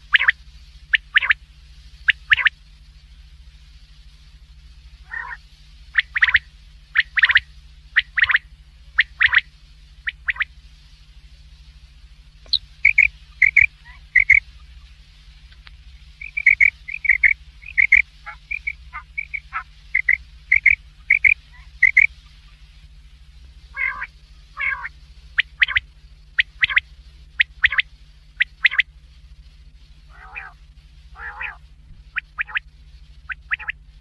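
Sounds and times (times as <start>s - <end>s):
quail calling: 0.0s - 1.4s, 2.1s - 2.5s, 5.0s - 10.5s, 12.5s - 14.8s, 16.2s - 22.6s, 23.7s - 25.8s, 26.4s - 28.9s, 30.1s - 32.6s, 33.3s - 33.8s
low steady hum: 0.0s - 34.0s.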